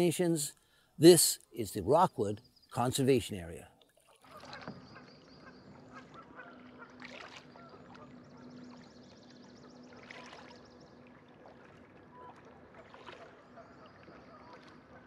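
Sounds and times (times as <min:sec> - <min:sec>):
paddle dipping into water: 0:03.8 - 0:15.0.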